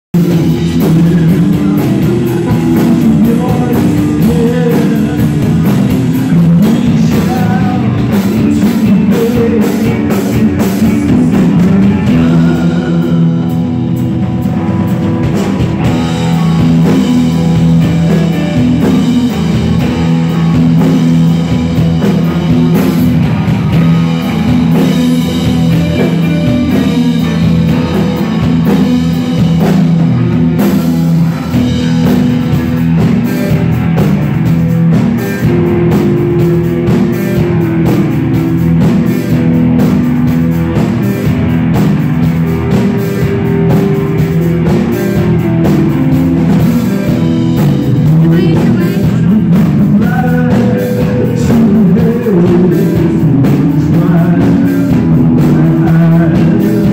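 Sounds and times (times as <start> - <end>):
drum kit: 0.1 - 56.9
person singing: 0.2 - 14.0, 47.9 - 56.9
electric guitars: 0.2 - 56.9.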